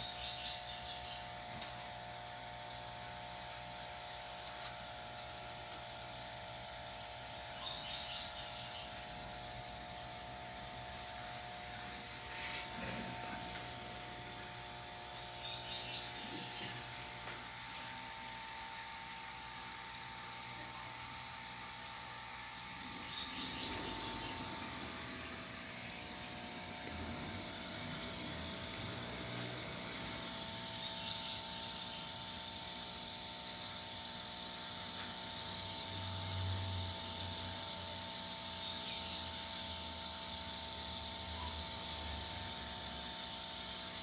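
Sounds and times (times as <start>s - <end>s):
aquarium equipment humming: 0.0s - 44.0s
water bubbling: 16.3s - 30.6s.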